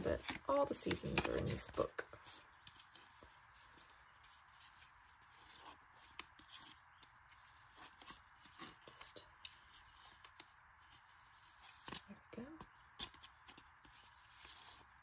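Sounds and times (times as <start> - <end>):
paper rustling: 0.0 - 12.2, 12.9 - 15.0
light paper ticks: 4.6 - 10.6.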